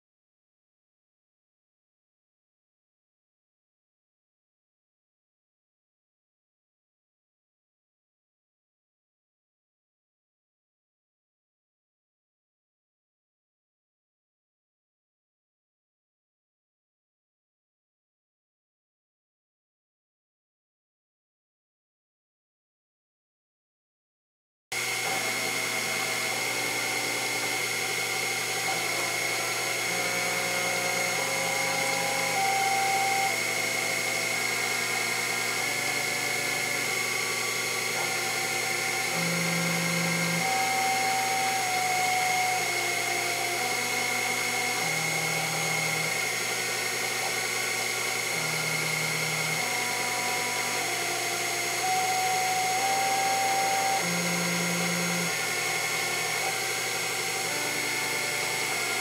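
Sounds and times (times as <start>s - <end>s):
milling machine whine: 24.8s - 59.0s
stepper motor tones: 24.8s - 59.0s.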